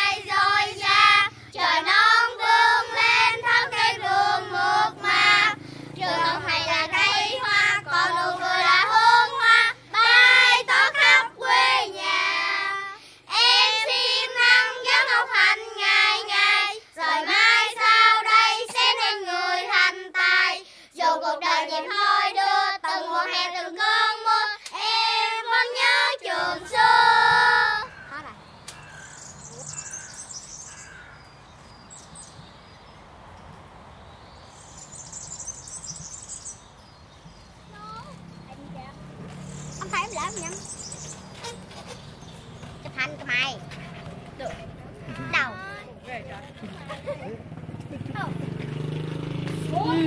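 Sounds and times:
child singing: 0:00.0 - 0:27.9.

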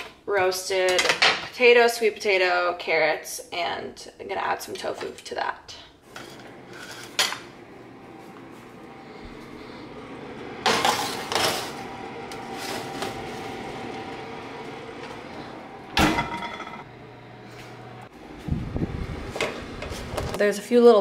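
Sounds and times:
steady hum: 0:06.0 - 0:20.4
oven door shutting: 0:06.1 - 0:18.0
metal pan clattering on rack: 0:16.0 - 0:16.8.

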